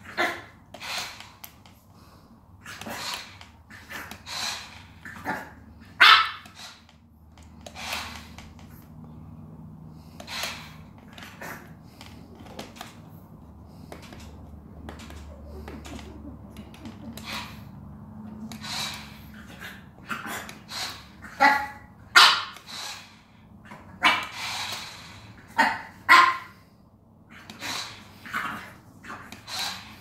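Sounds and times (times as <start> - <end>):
dog barking and yipping: 5.0 - 6.8, 19.4 - 22.7, 25.6 - 26.6.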